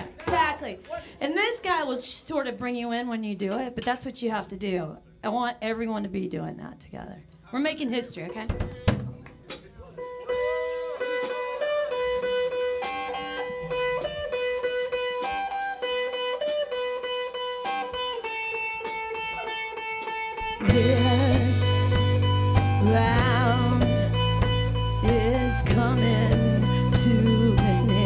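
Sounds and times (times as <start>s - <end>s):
rock band with bass and drums: 8.5s - 28.0s
electric guitar riff: 10.0s - 28.0s.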